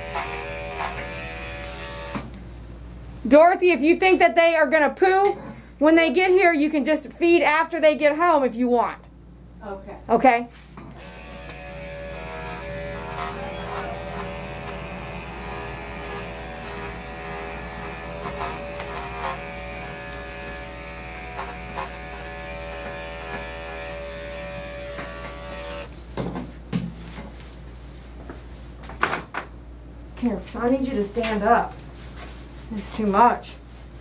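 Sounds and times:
electric clippers buzzing: 0.0s - 2.3s, 10.9s - 25.9s.

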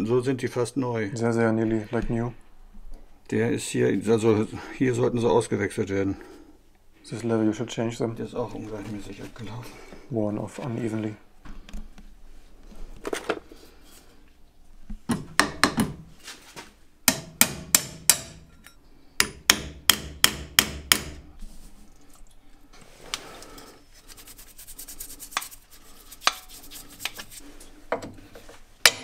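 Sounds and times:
hammer striking metal: 17.1s - 21.2s.

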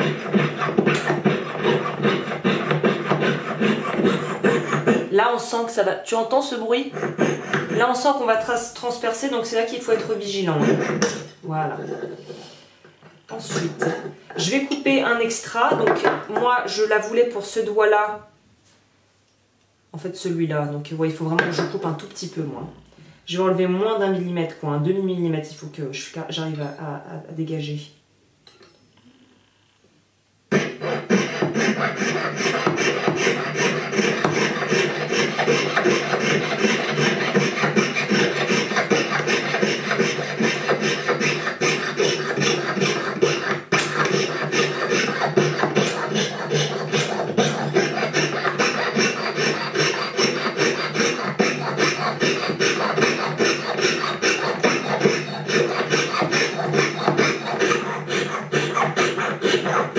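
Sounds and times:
saw cutting metal ring: 0.0s - 5.1s, 6.8s - 8.1s, 9.9s - 11.4s, 30.5s - 59.9s.

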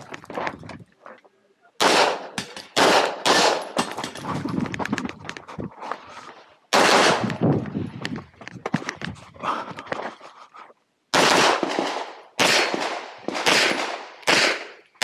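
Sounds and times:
pistol shots: 1.8s - 4.0s, 6.7s - 7.4s, 11.1s - 14.8s.

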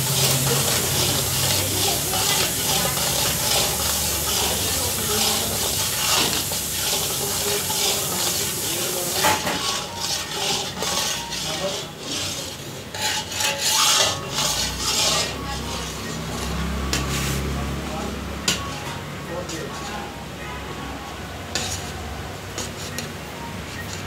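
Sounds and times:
metal spatula scraping iron pan: 0.0s - 17.6s, 21.5s - 24.0s.

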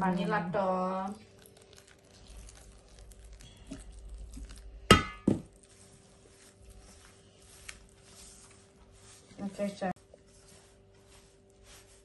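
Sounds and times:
hands rubbing oil into flour: 1.0s - 12.0s
metal mixing bowl clanging: 4.8s - 5.6s.

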